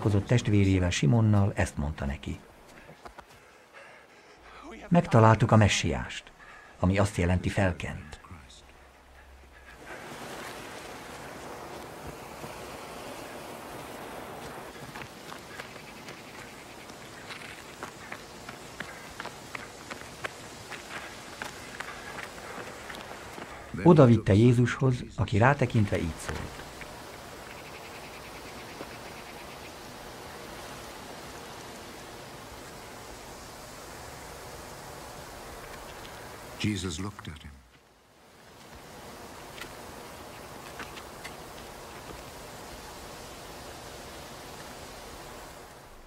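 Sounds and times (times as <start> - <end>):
outdoor ambience hiss: 0.0 - 46.0
surf washing onto sand: 9.8 - 23.7, 29.8 - 36.6, 38.2 - 46.0
light footfalls: 13.7 - 23.7.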